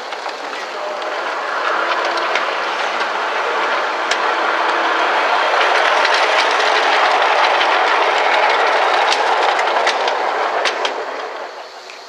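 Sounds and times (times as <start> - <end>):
sharp rail clicks: 0.0 - 12.0
steel wheels rolling on rails: 0.0 - 12.0.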